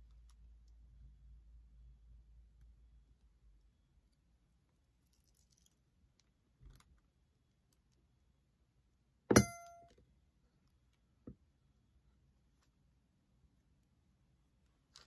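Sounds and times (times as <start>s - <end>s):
soap cutter clack with ringing: 9.3s - 10.0s.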